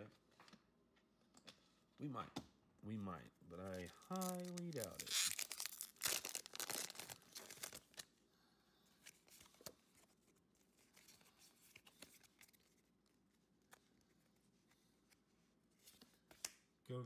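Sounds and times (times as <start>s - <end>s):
paper rustling: 9.0s - 16.5s.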